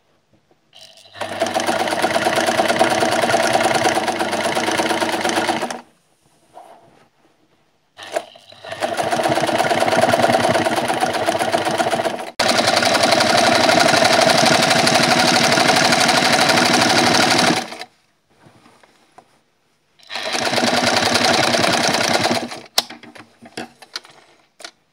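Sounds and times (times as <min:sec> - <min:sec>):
sewing machine stitching: 0:00.8 - 0:05.9, 0:08.0 - 0:17.9, 0:20.0 - 0:22.8.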